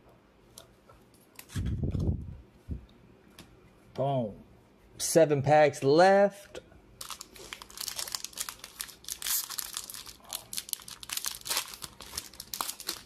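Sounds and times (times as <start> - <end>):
foil wrapper crinkling and tearing: 7.0 - 13.0.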